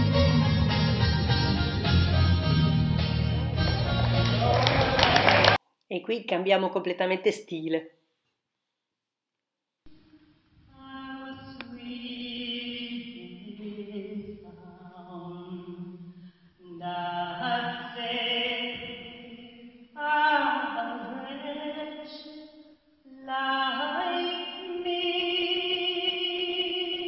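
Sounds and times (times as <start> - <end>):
woman singing into a microphone: 10.7 - 16.0, 16.6 - 22.4, 23.1 - 27.0.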